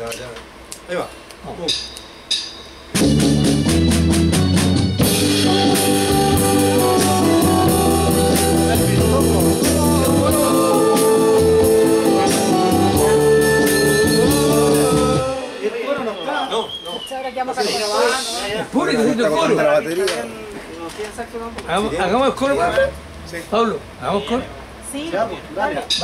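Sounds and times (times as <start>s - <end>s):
drum kit beat: 1.6s - 16.5s
rock band playing: 2.7s - 16.2s
saxophone: 3.7s - 15.6s
man singing: 5.3s - 15.7s.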